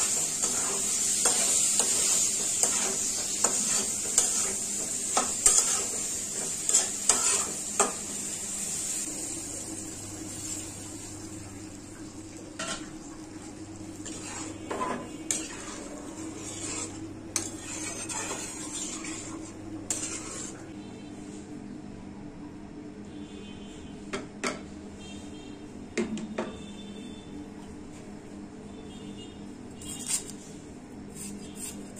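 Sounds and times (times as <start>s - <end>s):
spatula scraping a steel pan: 0.0s - 8.0s, 14.0s - 20.6s
tomatoes sizzling in a pan: 0.0s - 20.6s.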